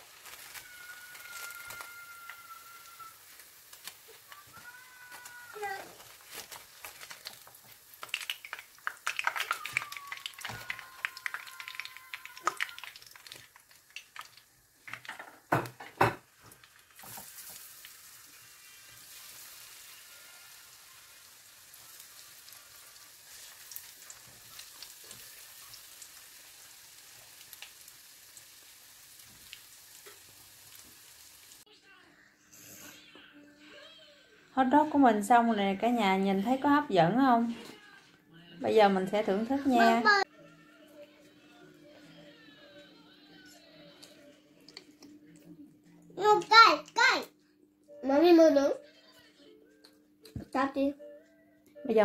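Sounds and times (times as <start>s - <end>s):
food sizzling in hot oil: 0.0s - 31.7s.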